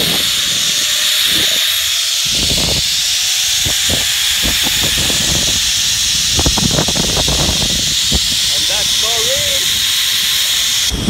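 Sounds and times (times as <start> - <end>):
wind buffeting microphone: 0.0 - 10.0, 10.6 - 11.0
zip-line trolley hissing on cable: 0.0 - 11.0.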